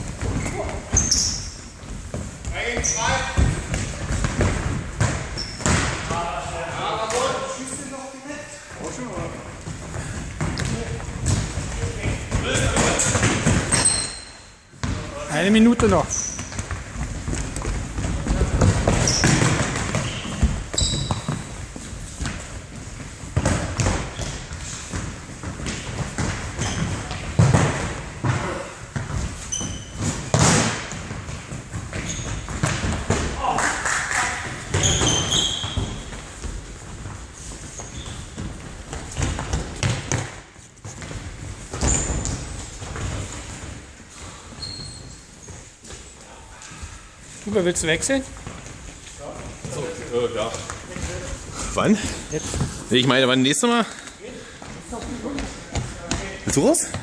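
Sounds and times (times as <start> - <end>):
shoe squeaks: 0.4 - 1.8, 2.7 - 3.4, 5.3 - 5.7, 13.7 - 14.7, 15.9 - 16.7, 19.0 - 21.6, 24.1 - 24.5, 26.6 - 27.2, 29.4 - 30.4, 31.9 - 32.6, 34.7 - 36.1, 37.6 - 38.4, 41.7 - 42.6, 44.3 - 45.8.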